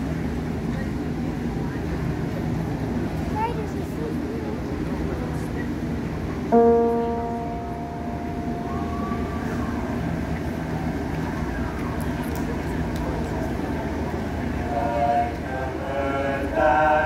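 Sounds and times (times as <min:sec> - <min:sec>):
low background rumble: 0:00.0 - 0:17.0
keyboard note ringing: 0:06.5 - 0:10.8.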